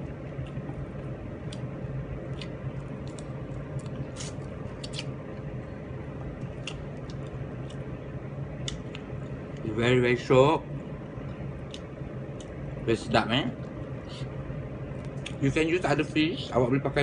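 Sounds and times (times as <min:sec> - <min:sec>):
steady low hum: 0:00.0 - 0:17.0
mouth chewing wet smacks: 0:02.3 - 0:05.1, 0:08.6 - 0:09.1, 0:15.0 - 0:15.4.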